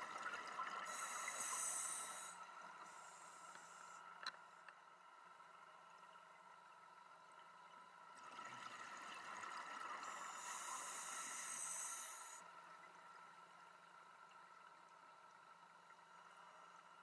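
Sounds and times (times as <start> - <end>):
diver breathing through regulator: 0.9 - 4.0.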